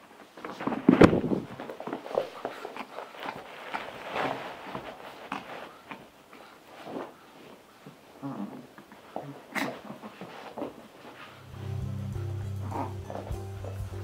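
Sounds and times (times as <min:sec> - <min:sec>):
dogs scuffling on a rug: 0:00.2 - 0:08.2.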